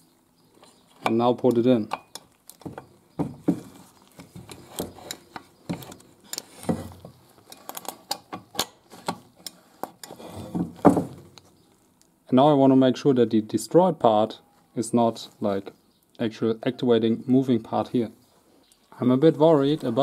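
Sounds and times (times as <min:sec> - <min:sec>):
heavy knocks on a bench: 0:02.7 - 0:03.7, 0:10.5 - 0:11.3.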